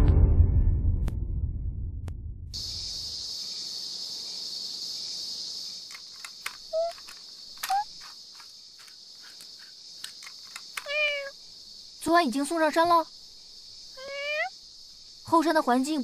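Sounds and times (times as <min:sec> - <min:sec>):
music: 0:00.0 - 0:02.3
insects chirring: 0:02.6 - 0:16.0
light clicks: 0:05.9 - 0:11.0.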